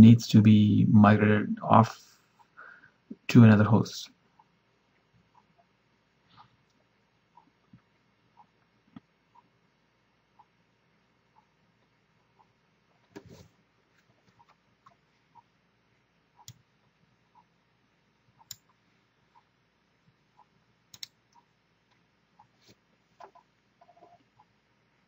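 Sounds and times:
computer mouse clicks: 16.4 - 16.6, 18.4 - 18.8, 20.9 - 22.0
light ticking: 16.4 - 16.7, 18.4 - 19.5, 20.4 - 22.5.

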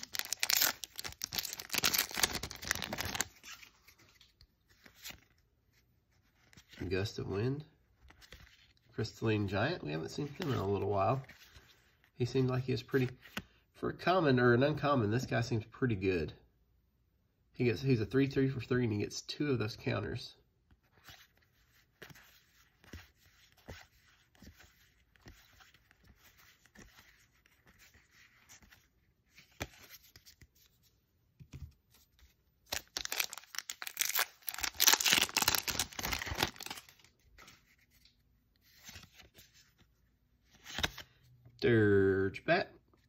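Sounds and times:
foil wrapper tearing: 0.0 - 3.2, 32.8 - 36.8
playing cards being shuffled: 0.0 - 5.4, 31.4 - 39.8, 40.5 - 41.1.

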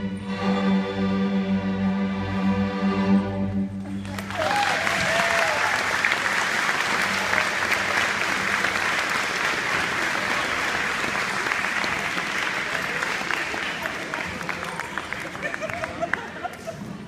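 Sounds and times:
audience applause: 3.9 - 17.0
audience cheer: 4.0 - 8.2.

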